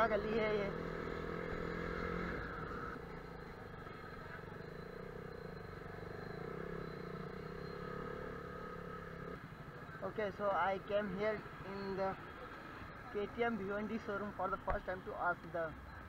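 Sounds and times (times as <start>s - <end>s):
motorcycle engine running: 0.0s - 11.1s.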